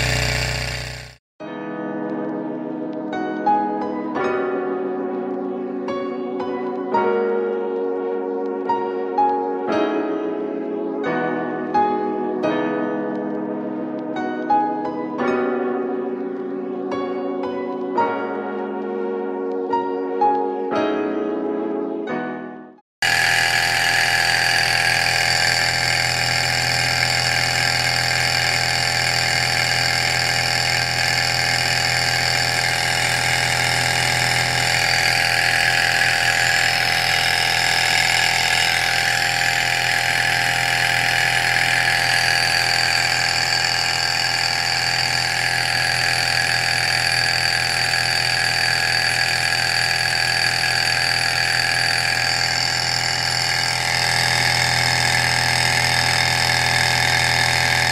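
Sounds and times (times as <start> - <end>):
model engine running: 0.0 - 1.2, 23.0 - 57.9.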